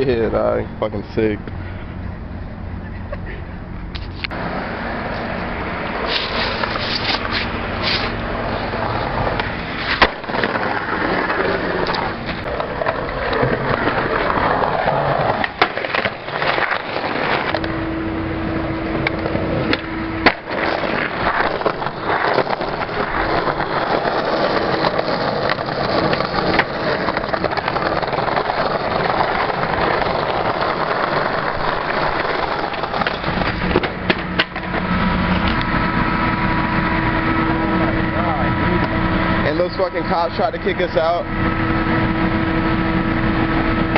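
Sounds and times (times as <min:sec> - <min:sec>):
skateboard wheels rolling on pavement: 0:03.6 - 0:43.9
skateboard clacking: 0:08.4 - 0:17.7, 0:19.0 - 0:35.7.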